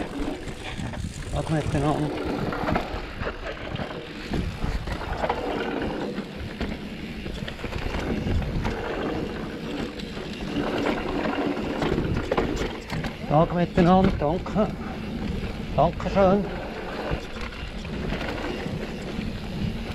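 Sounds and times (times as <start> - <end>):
bike knocks and rattles: 0.0 - 19.9
bike tyre noise on trail: 0.0 - 19.9
wind buffeting microphone: 0.0 - 19.9.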